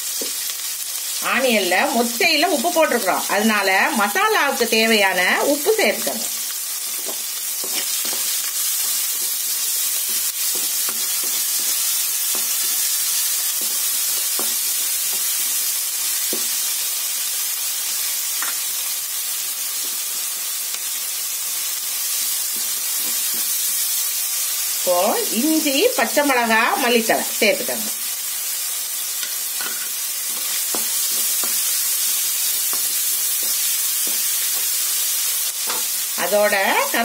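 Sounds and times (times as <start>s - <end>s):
onions sizzling in hot oil: 0.0s - 37.0s
wooden spatula scraping pan: 7.0s - 8.4s.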